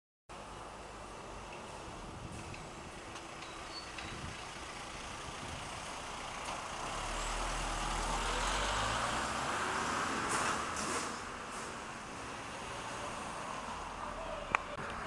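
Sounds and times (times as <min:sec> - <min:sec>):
vehicle passing: 0:04.3 - 0:15.0.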